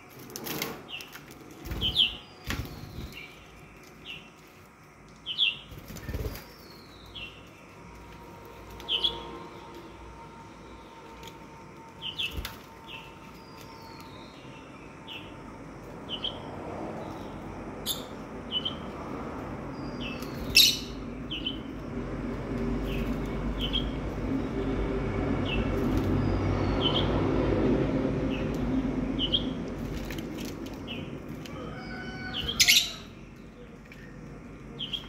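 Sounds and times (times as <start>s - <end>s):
lovebirds chirping: 0.8s - 9.8s, 11.9s - 21.9s, 28.3s - 35.0s.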